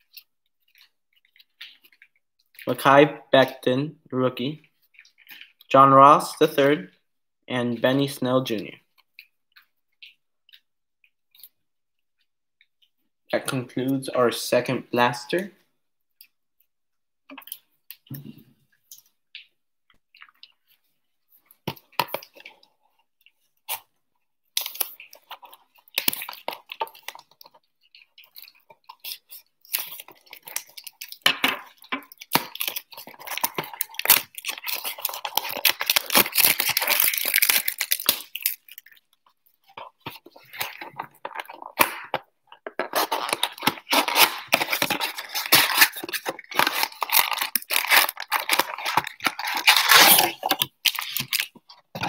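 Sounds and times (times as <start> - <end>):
plastic wrap crinkling and tearing: 24.6 - 52.0.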